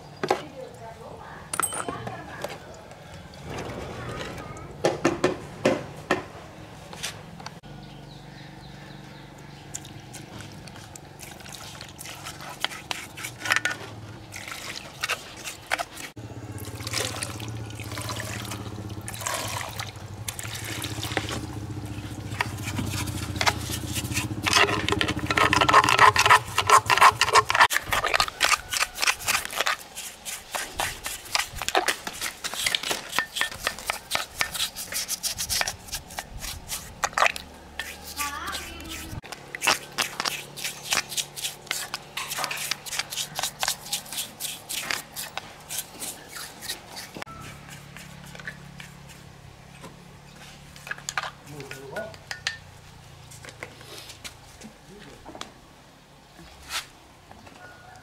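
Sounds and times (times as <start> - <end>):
paintbrush scrubbing wet metal: 9.8 - 16.2, 16.9 - 49.3
liquid dripping: 16.6 - 21.4.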